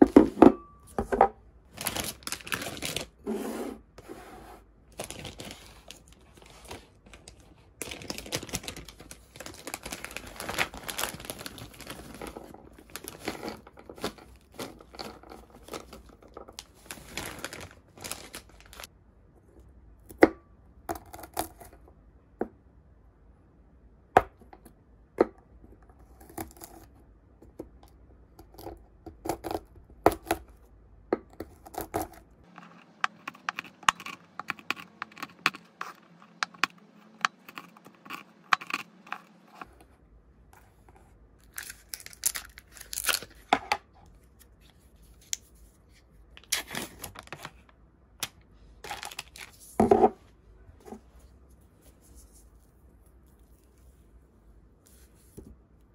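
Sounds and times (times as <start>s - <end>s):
rustling crinkling noise: 1.7s - 3.2s, 4.9s - 18.9s, 40.6s - 47.8s, 48.8s - 54.2s.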